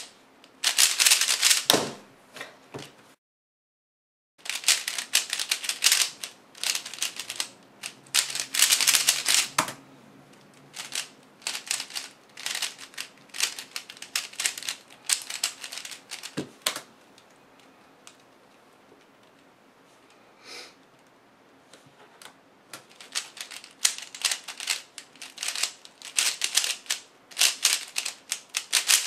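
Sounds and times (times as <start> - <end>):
puzzle cube plastic clicks: 0.6 - 1.7, 4.4 - 9.8, 10.5 - 17.3, 22.8 - 29.0.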